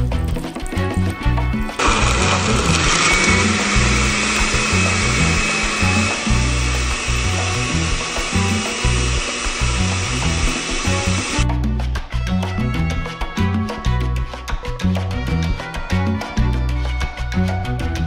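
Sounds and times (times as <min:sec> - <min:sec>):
background music with bass: 0:00.0 - 0:18.0
blender running with whine: 0:01.8 - 0:11.4.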